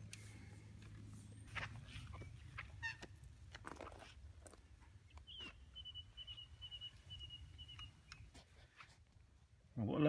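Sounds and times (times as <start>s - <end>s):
bird chirping: 1.2s - 3.3s, 5.0s - 8.3s.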